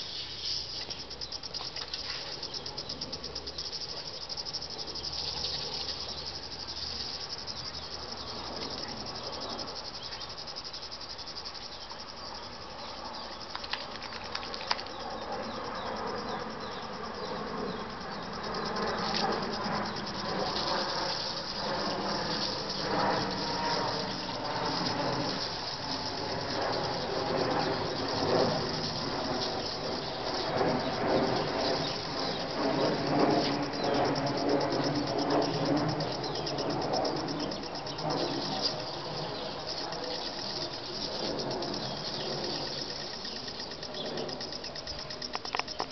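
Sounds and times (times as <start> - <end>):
insects buzzing: 0.0 - 45.9
water spraying from hose: 20.5 - 26.2.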